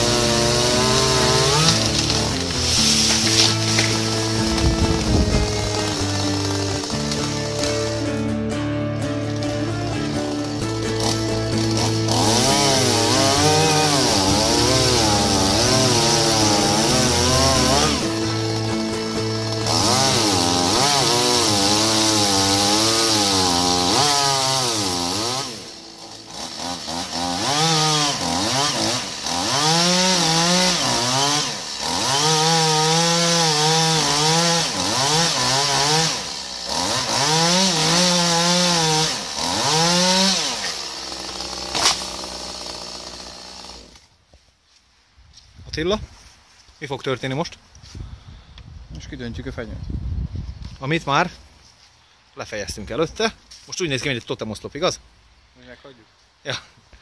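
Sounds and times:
chainsaw cutting through wood: 0.0 - 44.2.

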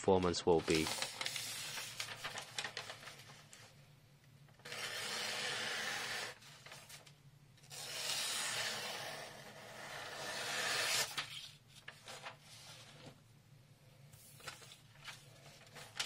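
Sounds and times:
paper crackling: 0.2 - 3.7, 6.2 - 7.2, 10.7 - 13.2, 14.2 - 16.0
knife cutting through paper: 4.6 - 6.9, 7.7 - 13.1.

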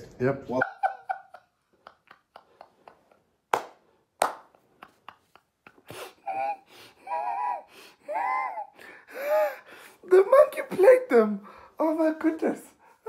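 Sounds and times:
man laughing hard: 4.8 - 8.7.

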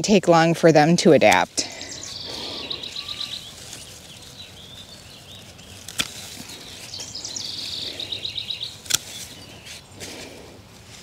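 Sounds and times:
wren singing with trill: 0.9 - 10.0
pruners snipping stem: 5.4 - 7.0, 8.7 - 10.2.

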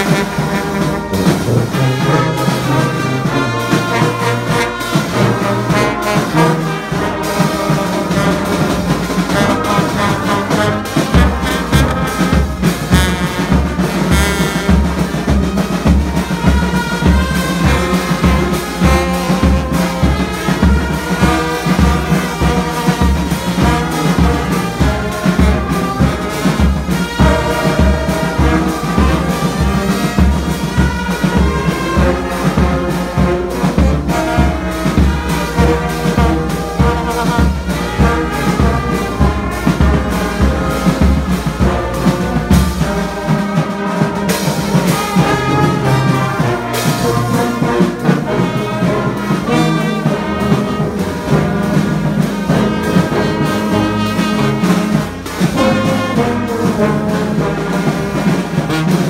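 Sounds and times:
trombones playing: 0.0 - 59.0
trumpets playing: 0.0 - 59.0.

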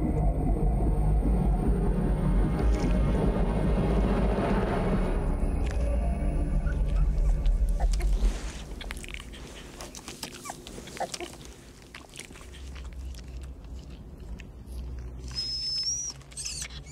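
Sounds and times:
puppies whimpering and squeaking: 6.3 - 16.9.

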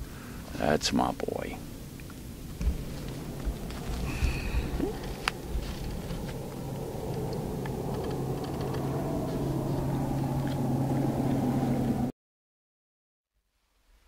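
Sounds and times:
motor rumble and hum: 1.4 - 12.1.

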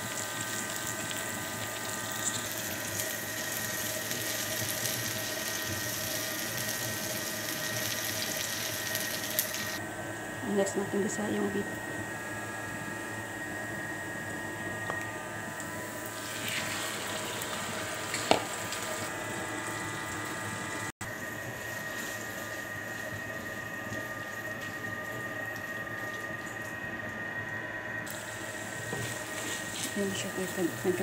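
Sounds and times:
food frying in a pan: 0.0 - 9.8, 15.9 - 27.2, 28.1 - 31.0.

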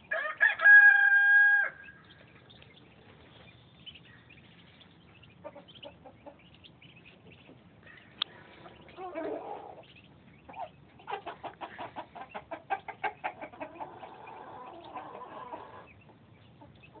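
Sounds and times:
ducklings peeping: 0.0 - 17.0.

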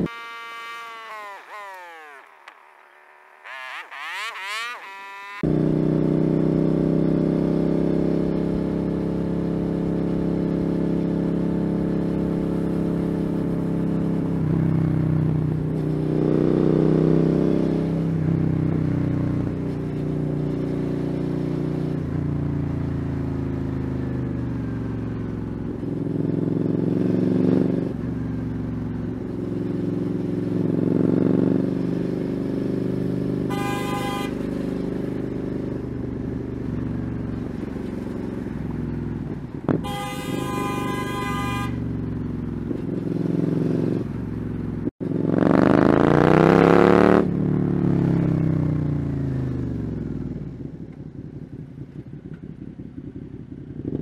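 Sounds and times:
vehicle horn: 0.0 - 2.2, 33.4 - 34.8, 39.7 - 42.0
motorcycle engine revving: 0.0 - 54.0.

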